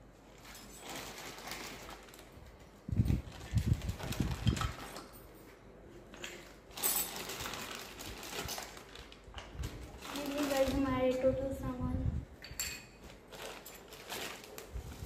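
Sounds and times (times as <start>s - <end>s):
plastic bag crinkling: 0.3s - 5.1s, 6.3s - 11.4s, 13.0s - 15.0s.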